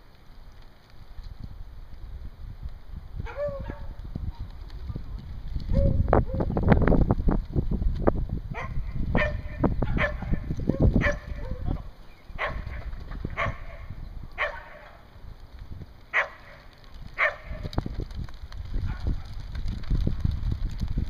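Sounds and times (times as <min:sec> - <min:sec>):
wind on microphone: 0:01.0 - 0:21.0
dog barking: 0:03.2 - 0:03.9, 0:08.6 - 0:10.4, 0:11.0 - 0:11.6, 0:12.4 - 0:15.0, 0:16.1 - 0:16.5, 0:17.2 - 0:17.6.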